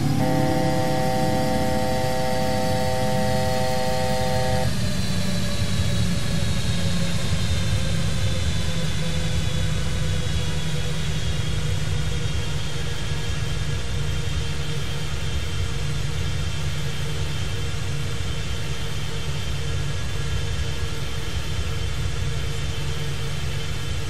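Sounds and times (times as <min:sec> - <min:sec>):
chord-like alert tone: 0:00.0 - 0:04.7
airliner engines rumbling: 0:00.0 - 0:24.0
faint high whine: 0:00.0 - 0:24.0.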